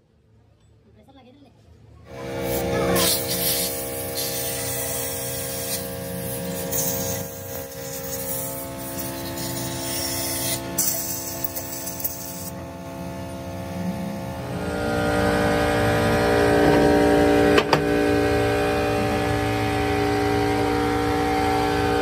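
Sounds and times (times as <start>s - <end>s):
compressed air blow gun hissing: 2.5s - 12.5s
machine hum: 5.7s - 22.0s.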